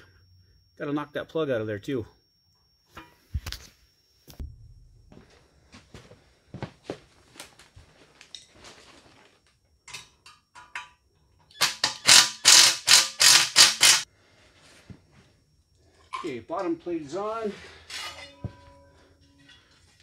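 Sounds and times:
cordless power driver bursts: 11.6 - 14.0.

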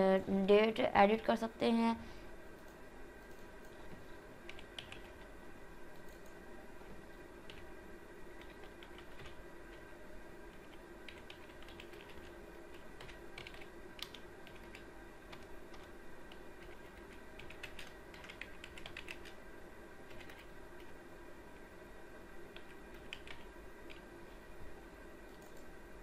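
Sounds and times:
low steady hum: 0.0 - 26.0
typing on computer keyboard: 4.5 - 5.3, 8.4 - 9.4, 10.6 - 19.4, 20.1 - 20.9, 22.5 - 24.0.

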